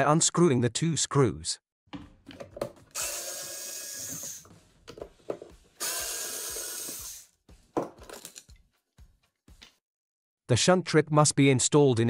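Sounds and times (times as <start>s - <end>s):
plastic cover clicks and knocks: 2.0s - 2.9s
electric screwdriver whirring: 2.9s - 4.5s, 5.8s - 7.3s.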